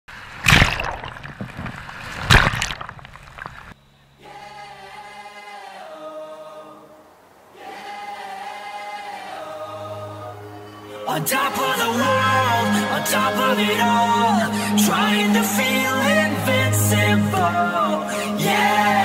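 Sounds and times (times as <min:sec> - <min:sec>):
held choir-like vocal chords: 0:04.1 - 0:19.0.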